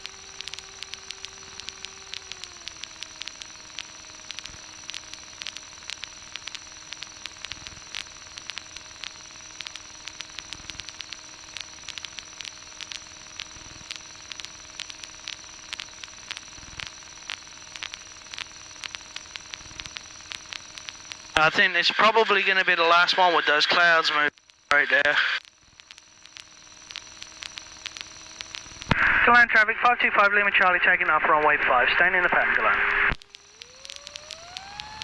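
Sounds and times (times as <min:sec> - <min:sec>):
crackling static clicks: 0:00.0 - 0:35.0
intercom hiss: 0:21.3 - 0:25.4, 0:28.9 - 0:33.2.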